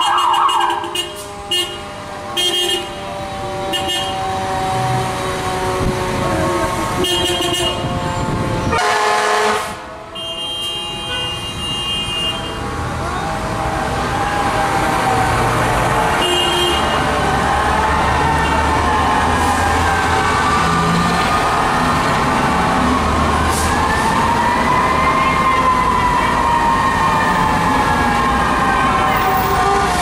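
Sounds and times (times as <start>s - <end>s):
air horn blasts: 0.0s - 3.0s, 3.6s - 4.6s, 5.8s - 12.7s, 16.2s - 17.1s
traffic noise: 0.0s - 30.0s.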